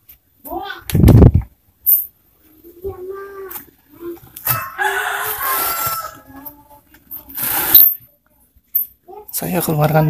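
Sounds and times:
rooster crowing: 0:04.4 - 0:06.5.

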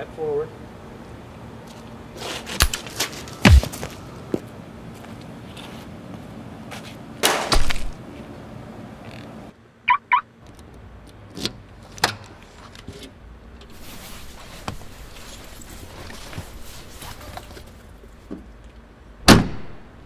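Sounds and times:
sharp knocks: 0:03.4 - 0:03.9
loud pistol shot: 0:03.5 - 0:03.8, 0:19.3 - 0:19.9.

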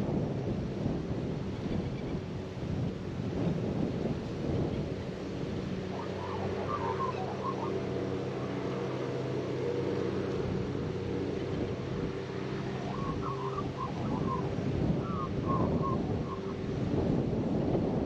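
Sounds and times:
wind: 0:00.0 - 0:18.0
magpie warbling: 0:05.9 - 0:07.8.

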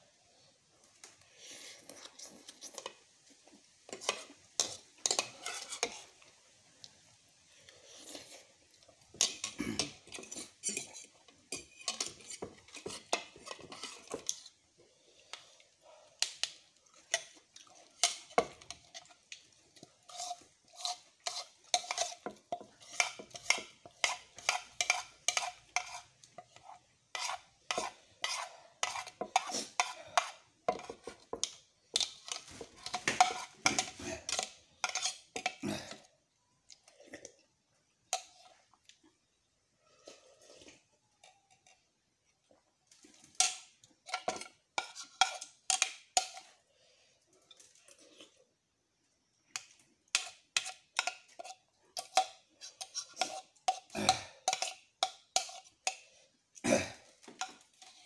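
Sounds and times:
metal spoon scraping plastic bowl: 0:03.9 - 0:06.1, 0:09.2 - 0:14.5, 0:20.0 - 0:35.6, 0:43.3 - 0:46.5, 0:50.1 - 0:56.0, 0:57.4 - 0:58.0.

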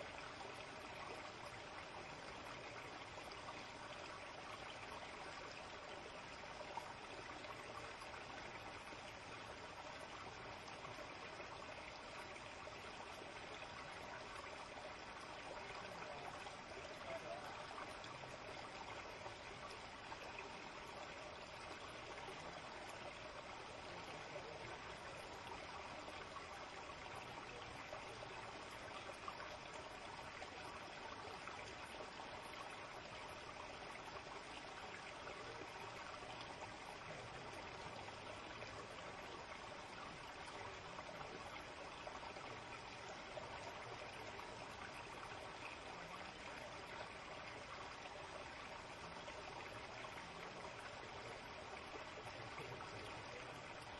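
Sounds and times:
stream flowing over rocks: 0:00.0 - 0:53.9.

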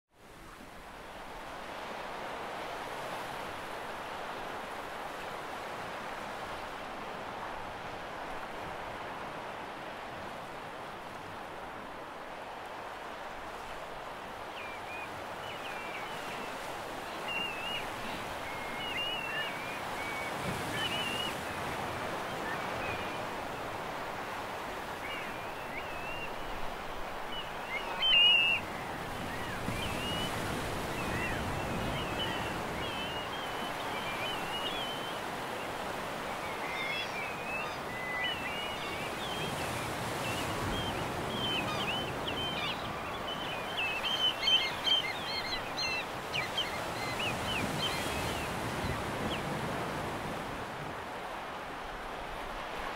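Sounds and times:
sea surf rushing: 0:00.3 - 0:52.9
small birds chirping: 0:27.3 - 0:49.5.

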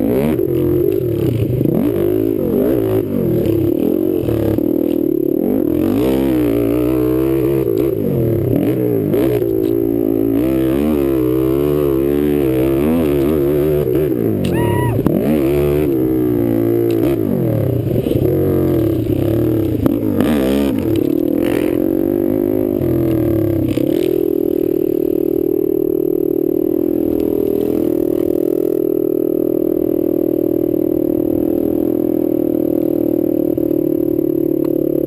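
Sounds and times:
quad bike engine revving: 0:00.0 - 0:35.0.

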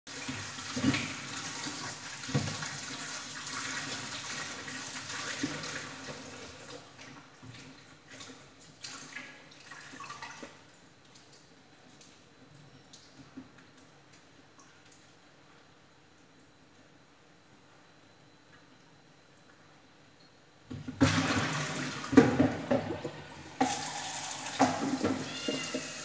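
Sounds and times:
running tap water: 0:00.1 - 0:07.0, 0:21.0 - 0:26.0.

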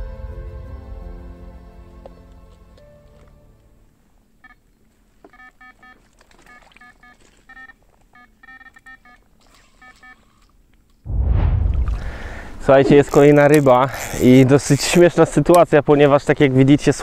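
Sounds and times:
bite alarm beeps: 0:05.3 - 0:09.2.

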